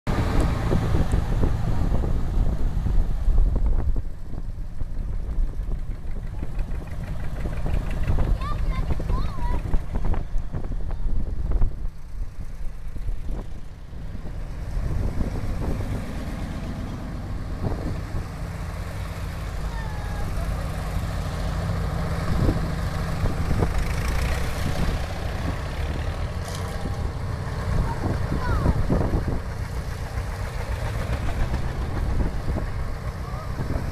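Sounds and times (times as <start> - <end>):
tractor engines rumbling and popping: 0.1 - 33.9.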